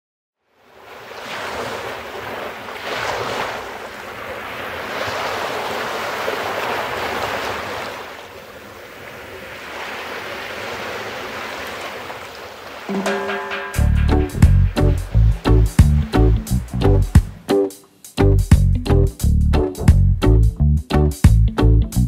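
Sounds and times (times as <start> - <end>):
waves washing onto sandy shore: 0.5 - 13.2.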